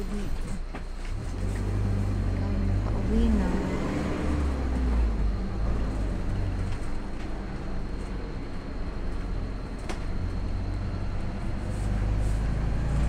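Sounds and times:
vehicle engine and tyre rumble: 0:00.0 - 0:13.0.

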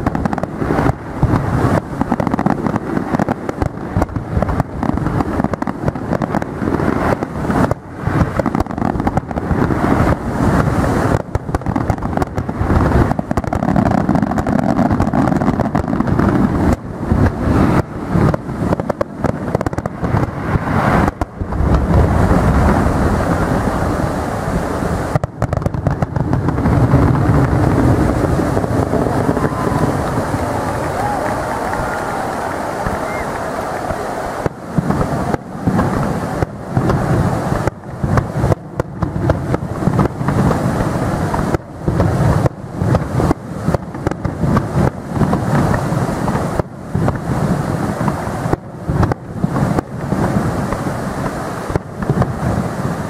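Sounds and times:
firework shells bursting: 0:00.0 - 0:23.8.

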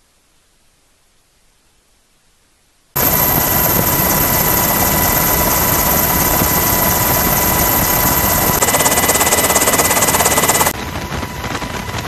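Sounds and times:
helicopter engine and rotor: 0:03.0 - 0:12.0.

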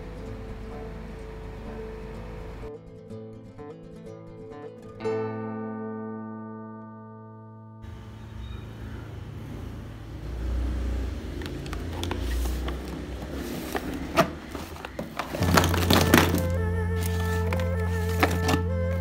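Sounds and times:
low steady rumble: 0:00.0 - 0:02.7, 0:07.9 - 0:19.0
paint tubes knocking and clicking: 0:11.4 - 0:19.0
plastic drawer sliding open: 0:11.4 - 0:19.0.

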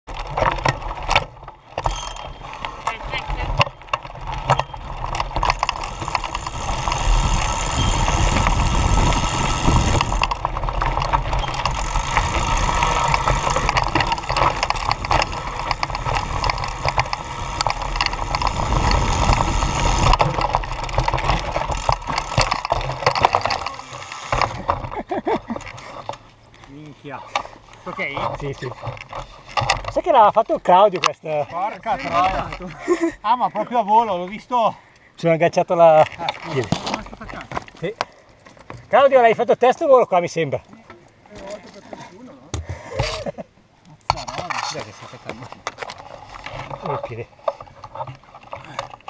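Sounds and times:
bike parts rattling: 0:00.0 - 0:33.2, 0:35.7 - 0:42.0, 0:44.0 - 0:49.0
tyre noise on rocky trail: 0:00.0 - 0:49.0
bike falling: 0:00.1 - 0:26.8, 0:35.9 - 0:39.4.

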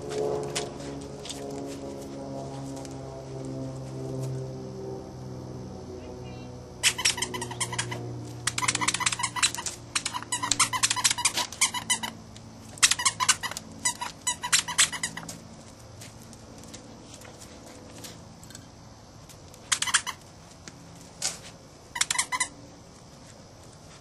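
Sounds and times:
squeaky dog toy squeaking: 0:06.8 - 0:12.2, 0:12.8 - 0:15.2, 0:22.0 - 0:22.5.

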